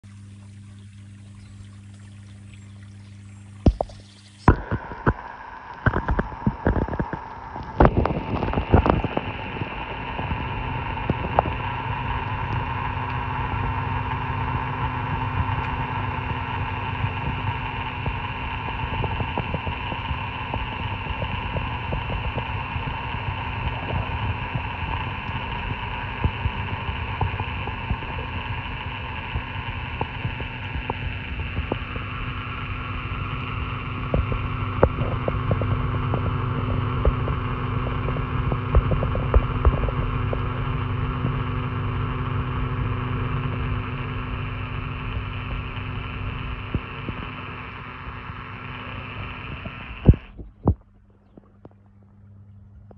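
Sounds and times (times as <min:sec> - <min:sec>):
pond pump tones: 0:00.0 - 0:52.9
underwater hum: 0:00.0 - 0:52.9
microphone bumps and splashes: 0:03.6 - 0:11.7, 0:34.1 - 0:40.6, 0:49.2 - 0:52.2.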